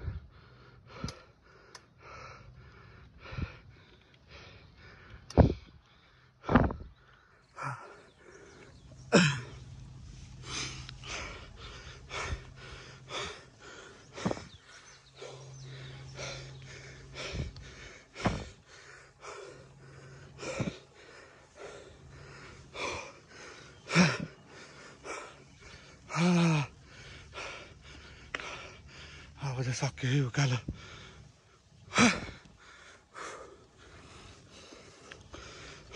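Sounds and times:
person panting hard: 0.0s - 29.4s, 30.5s - 35.9s
person groaning: 9.1s - 9.5s.

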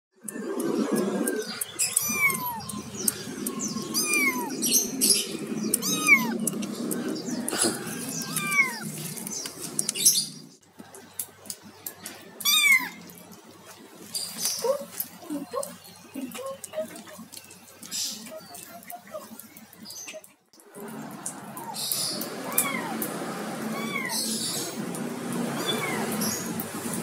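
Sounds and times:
kittens meowing: 1.8s - 6.5s, 7.5s - 9.2s, 12.4s - 13.0s, 21.6s - 24.6s, 25.6s - 26.5s.

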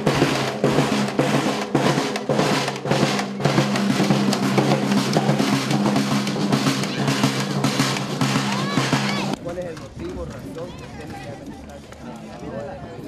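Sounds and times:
snare and bass drums marching: 0.0s - 10.3s.

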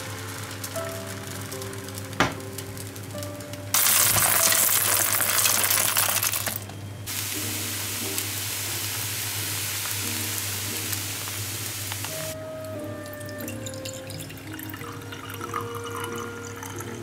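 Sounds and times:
pancake batter sizzling in pan: 0.0s - 3.1s, 3.7s - 12.4s.

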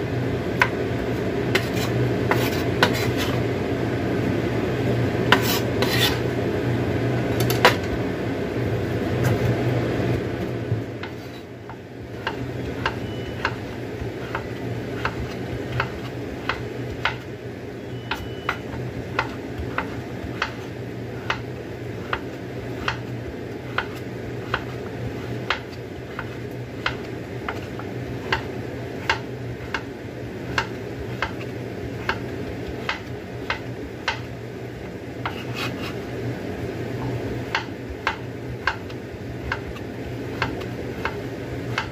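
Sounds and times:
knife scraping: 1.5s - 3.4s, 5.3s - 6.3s, 11.0s - 11.6s, 12.2s - 17.3s, 17.9s - 21.4s, 22.0s - 34.3s, 35.2s - 36.1s
knife chopping on wooden board: 11.0s - 17.2s, 18.1s - 23.1s, 23.7s - 29.9s, 30.5s - 34.3s, 35.2s - 35.8s, 37.0s - 41.9s.

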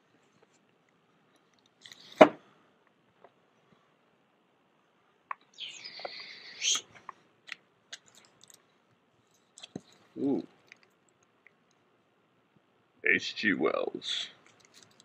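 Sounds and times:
person murmuring: 10.2s - 10.5s.

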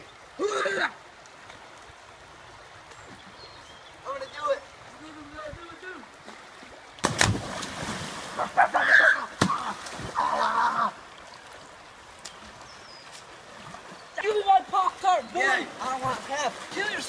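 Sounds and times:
stream flowing: 0.0s - 17.0s
water sloshing: 4.0s - 17.0s
person splashing into water: 7.0s - 10.5s.

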